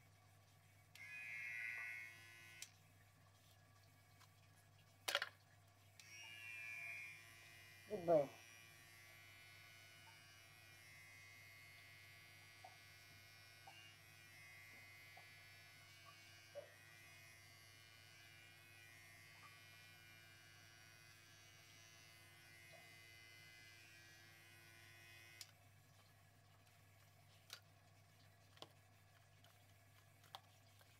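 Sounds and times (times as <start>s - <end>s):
electric hair clippers buzzing: 1.0s - 2.8s, 6.0s - 25.6s.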